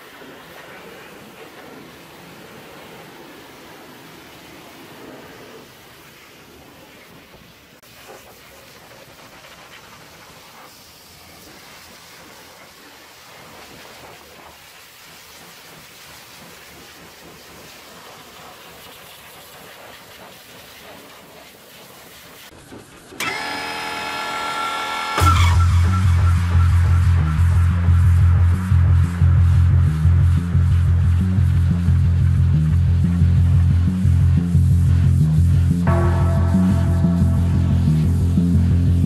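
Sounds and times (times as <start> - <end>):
pressure washer spraying: 7.9 - 25.8
loud music: 25.2 - 39.0.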